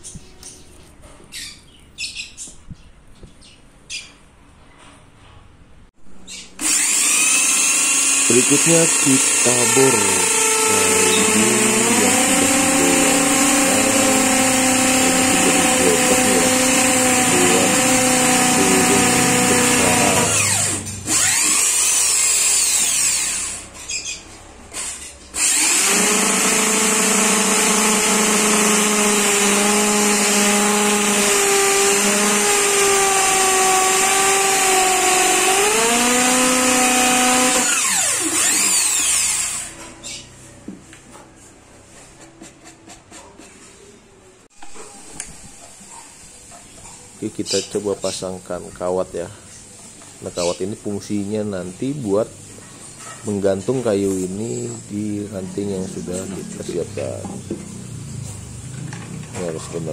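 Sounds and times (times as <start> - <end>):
electric drill boring into wood: 6.6 - 23.7, 24.7 - 39.8.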